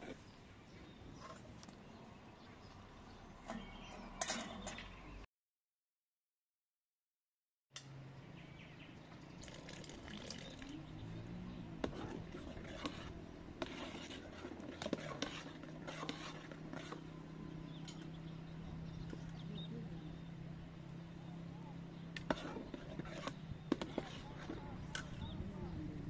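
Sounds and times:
liquid pouring into pot: 9.4 - 10.7
low hum: 15.6 - 26.0.

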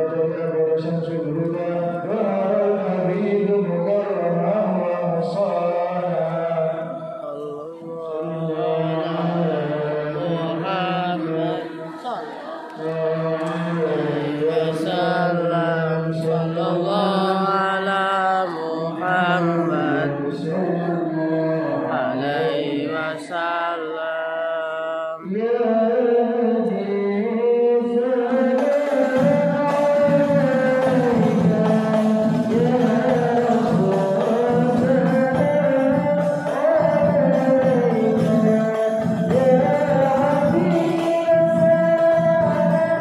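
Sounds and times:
devotional singing: 0.0 - 43.0
jingling percussion: 28.5 - 43.0.

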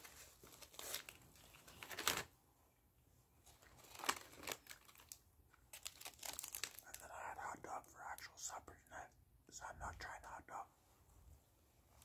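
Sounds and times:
packaging crinkling and rustling: 0.0 - 2.4, 3.4 - 7.0.

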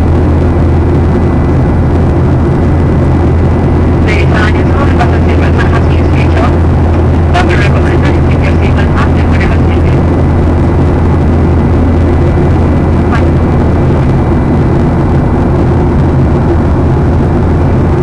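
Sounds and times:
jet engines droning: 0.0 - 18.0
rushing air: 9.9 - 18.0.

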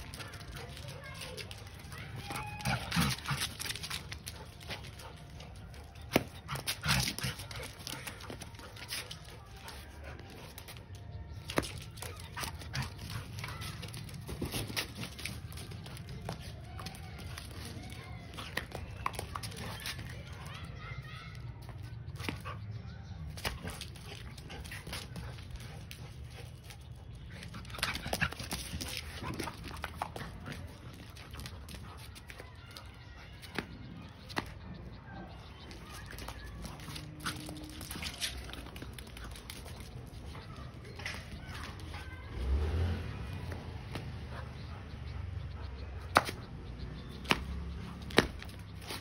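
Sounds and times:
dog noises: 33.6 - 49.0.

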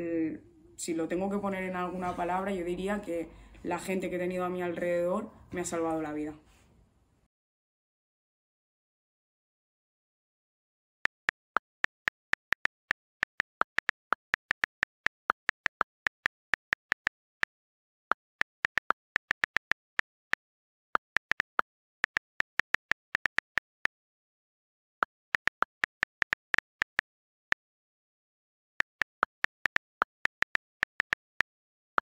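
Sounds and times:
phone keyboard clicks: 11.2 - 17.4, 18.4 - 20.2, 21.0 - 23.8, 28.8 - 31.6.

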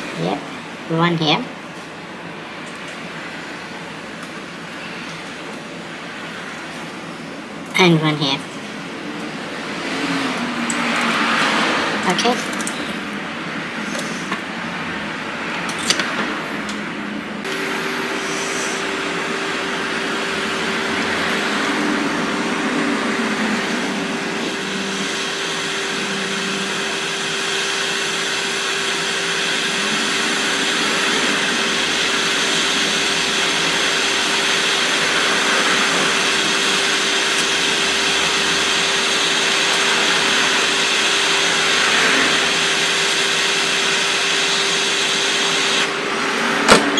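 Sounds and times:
fan hum: 0.0 - 46.9
hot air blower hiss: 17.4 - 46.9.

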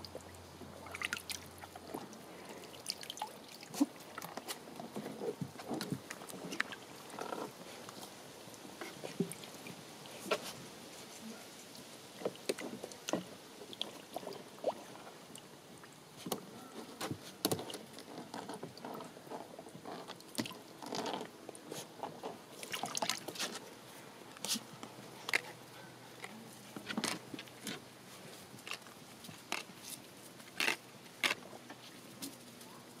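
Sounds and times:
water splashing in plastic tub: 0.0 - 7.6, 22.1 - 23.6.

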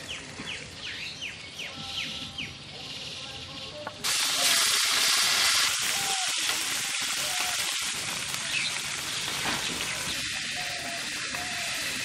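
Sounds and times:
fish sizzling in hot oil: 4.0 - 12.0.

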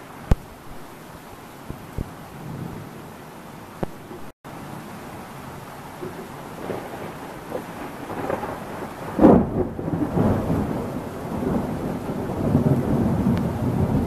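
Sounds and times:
thunder rumbling: 5.2 - 14.0
loud thunder clap: 6.1 - 14.0.

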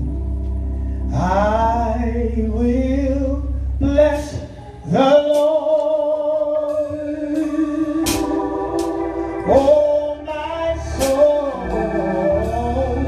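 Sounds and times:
low sustained accompaniment: 0.0 - 13.0
person singing gospel: 0.0 - 13.0
cymbal hits: 8.0 - 10.0.

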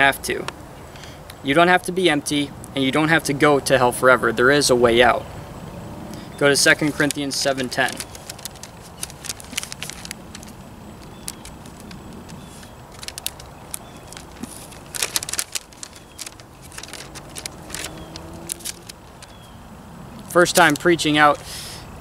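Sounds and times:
paper pages rustling: 6.6 - 19.5, 20.3 - 21.4.

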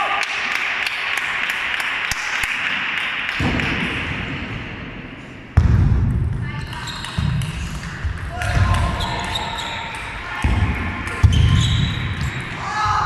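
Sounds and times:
table tennis ball bouncing: 5.6 - 12.4.

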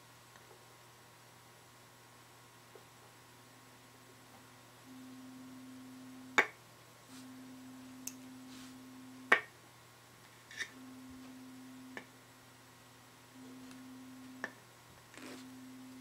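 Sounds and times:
low electrical hum: 0.0 - 16.0
faint low test tone: 7.2 - 9.3, 10.7 - 12.0.

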